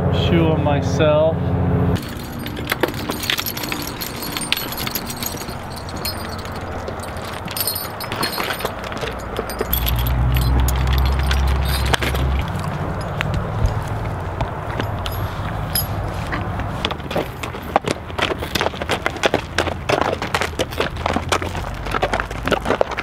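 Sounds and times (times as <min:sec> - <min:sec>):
harness buckles jingling: 0:02.0 - 0:23.0.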